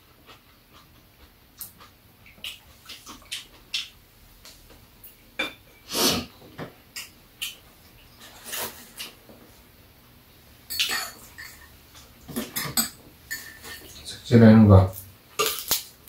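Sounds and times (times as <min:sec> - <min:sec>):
chewing: 0:00.0 - 0:03.9.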